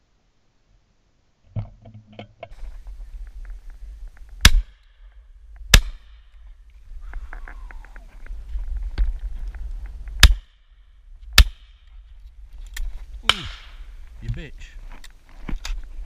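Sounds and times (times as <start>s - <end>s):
shotgun shots: 13.3s - 13.9s.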